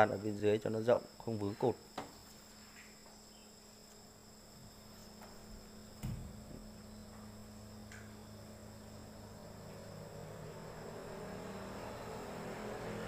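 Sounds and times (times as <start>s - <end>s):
insects chirring: 0.0s - 13.0s
low hum: 3.6s - 13.0s
dull thump: 5.2s - 7.3s.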